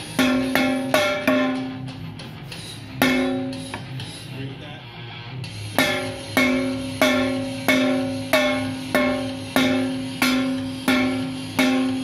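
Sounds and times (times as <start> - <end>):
drumstick hitting tin can lid: 0.0 - 1.9, 3.0 - 4.0, 5.7 - 12.0.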